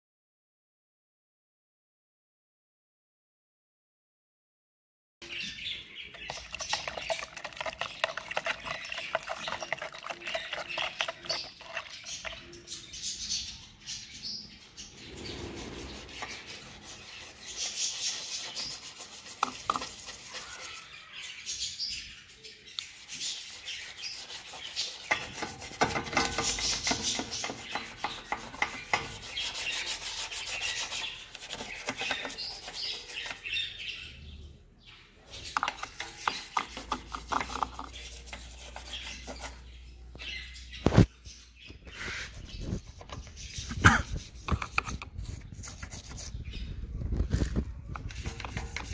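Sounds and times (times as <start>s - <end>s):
toothbrush scraping: 6.2s - 12.4s, 15.0s - 20.9s, 22.8s - 33.6s, 35.5s - 39.8s, 41.9s - 46.6s, 48.0s - 48.9s.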